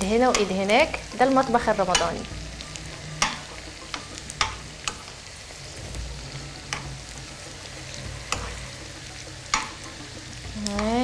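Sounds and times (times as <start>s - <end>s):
oil sizzling: 0.0s - 11.0s
metal spoon clicking against pan: 0.3s - 0.7s, 9.5s - 9.8s.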